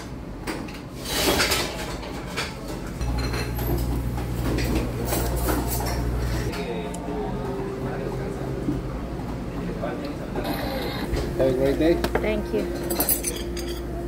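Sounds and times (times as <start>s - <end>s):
dishes and cutlery clinking: 1.2s - 6.6s, 12.0s - 14.0s.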